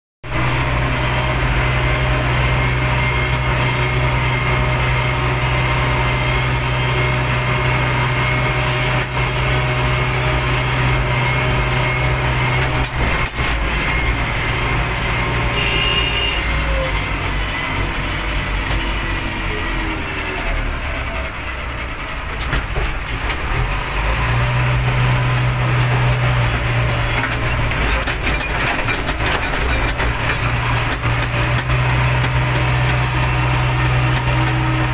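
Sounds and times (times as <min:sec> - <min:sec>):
diesel engine running: 0:00.2 - 0:34.9
rattles: 0:08.8 - 0:09.6, 0:12.2 - 0:15.0, 0:21.9 - 0:24.2, 0:25.2 - 0:34.9.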